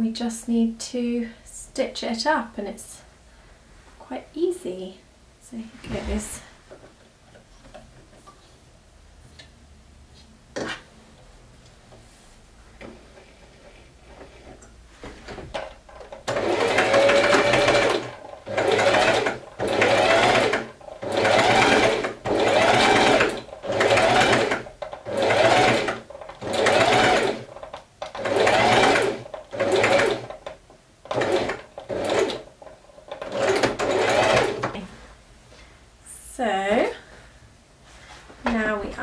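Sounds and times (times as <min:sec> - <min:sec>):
sewing machine stitching: 0:15.2 - 0:34.9.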